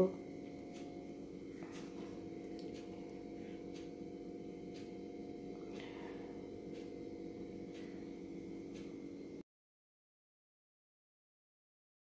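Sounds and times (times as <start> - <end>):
steady low hum: 0.0 - 9.4.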